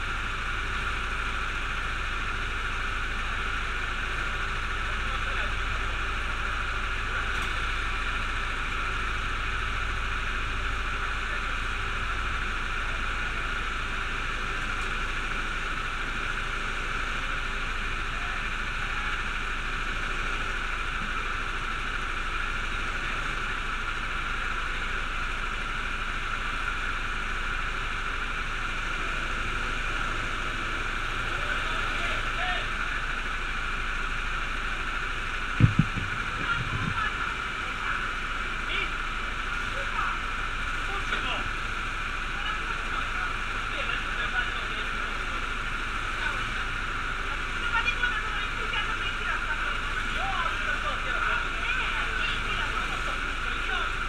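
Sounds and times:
go-kart engines idling: 0.0 - 54.0.

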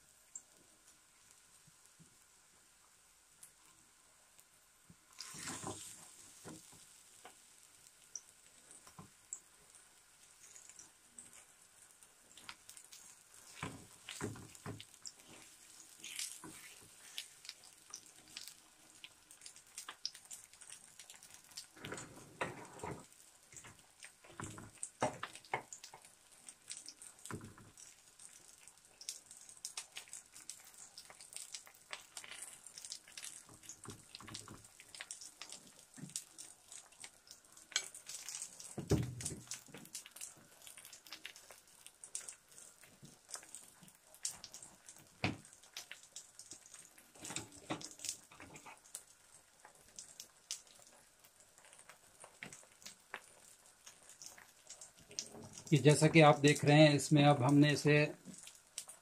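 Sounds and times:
batter sizzling in a pan: 0.0 - 59.0.

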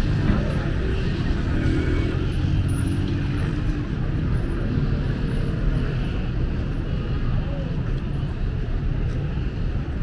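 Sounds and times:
cars and motorbikes passing: 0.0 - 7.2.

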